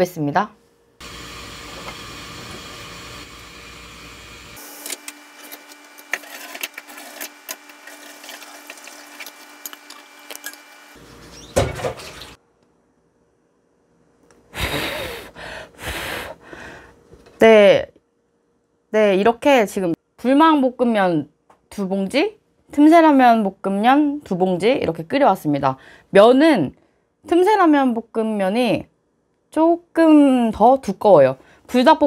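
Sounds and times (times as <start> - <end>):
tap water running: 1.0 - 4.6, 6.0 - 12.4.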